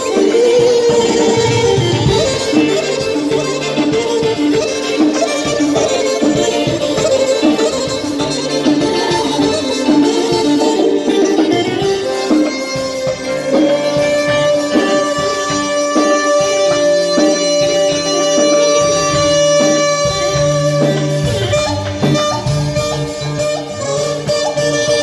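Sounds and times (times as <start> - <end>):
bass line: 0.0 - 25.0
clarinet melody: 0.0 - 25.0
electric guitar: 0.0 - 25.0
keyboard: 0.0 - 25.0.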